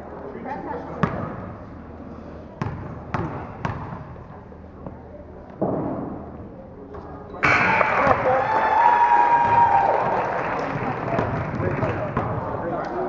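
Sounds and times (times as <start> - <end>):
basketball bouncing on wooden floor: 2.6 - 4.0.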